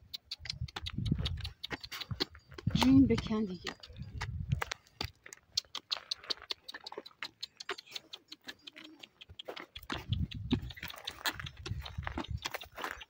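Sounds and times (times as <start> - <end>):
donkey hooves clip-clopping: 0.0 - 13.0.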